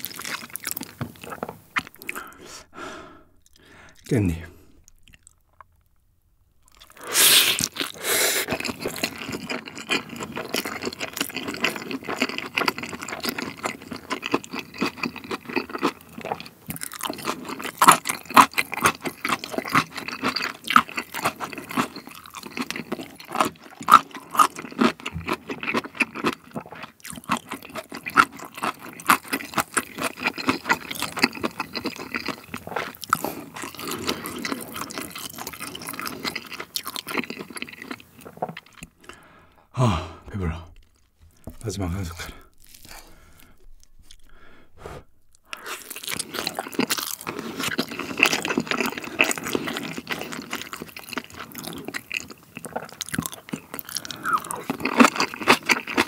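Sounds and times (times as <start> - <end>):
chewing food: 0.0 - 2.5, 3.3 - 4.1, 4.7 - 6.0, 6.6 - 39.7, 40.7 - 56.0.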